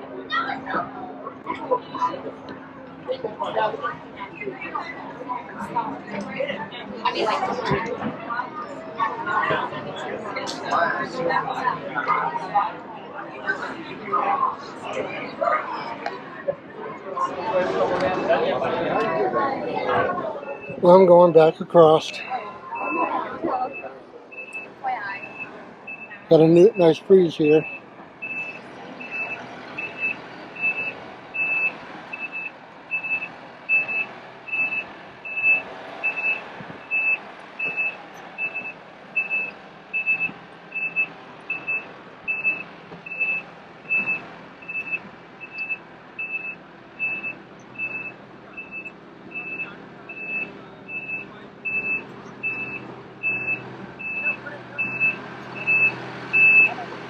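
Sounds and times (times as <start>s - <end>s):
back-up alarm beeping: 20.4s - 56.8s.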